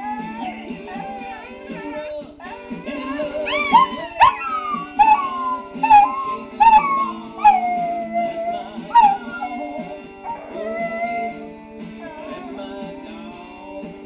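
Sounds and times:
dog howling: 0.0 - 2.2, 3.0 - 11.5
recorded music: 0.0 - 14.0.

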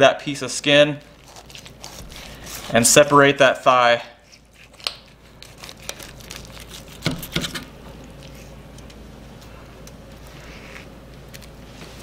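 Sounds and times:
meat tearing and crackling: 1.0 - 2.8, 4.4 - 8.9.

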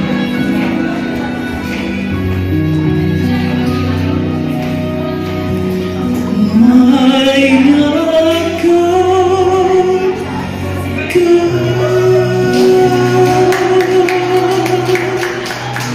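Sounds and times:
backing music: 0.0 - 15.9
man singing into microphone: 6.0 - 15.9.

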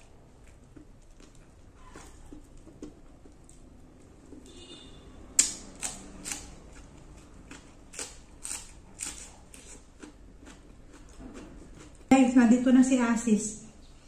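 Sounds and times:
lettuce wrap crunching: 7.5 - 11.1.

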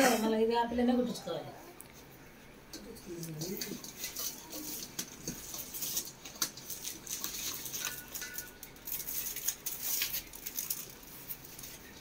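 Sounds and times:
cloth and packets rustling: 3.1 - 12.0.

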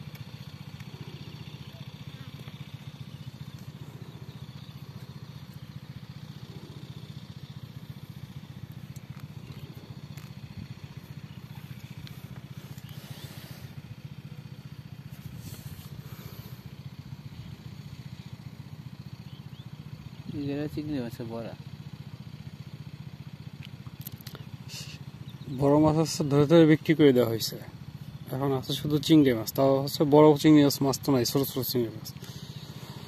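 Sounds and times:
engine running steadily: 0.0 - 33.0
faint rustles: 0.1 - 17.3.

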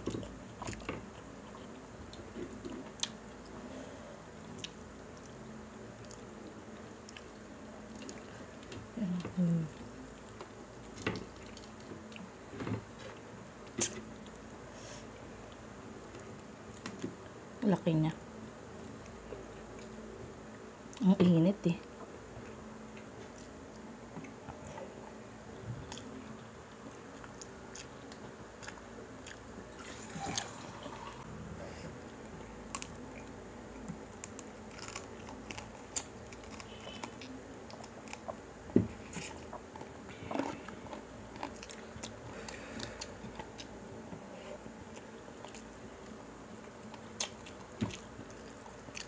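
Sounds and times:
faint steady hum: 0.0 - 49.0
chewing and crunching: 4.4 - 14.5, 25.8 - 30.6, 32.0 - 49.0.

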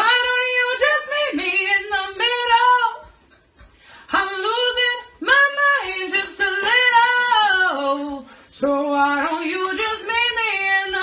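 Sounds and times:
short breaths: 3.4 - 4.1, 8.2 - 8.5.

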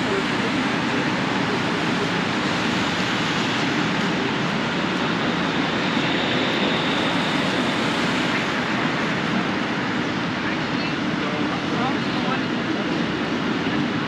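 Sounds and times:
traffic: 0.0 - 14.0.

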